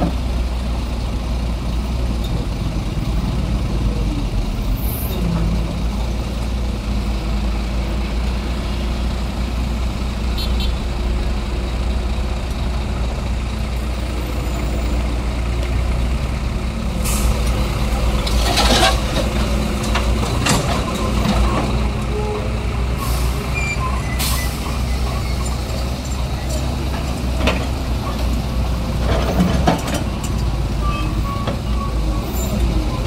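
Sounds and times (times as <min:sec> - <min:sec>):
excavator diesel engine running: 0:00.0 - 0:33.0
soil and asphalt clattering into truck: 0:17.1 - 0:21.8.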